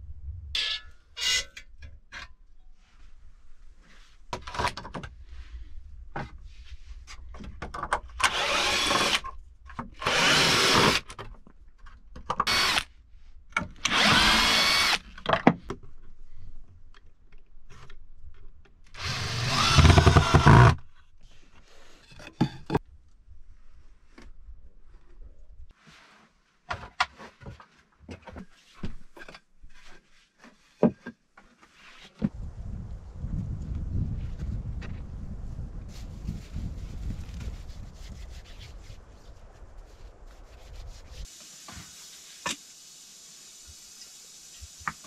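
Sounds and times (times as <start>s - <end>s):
cordless drill driving screws: 8.2s - 9.2s, 10.0s - 11.0s, 12.4s - 12.9s, 13.8s - 15.1s, 19.0s - 20.8s.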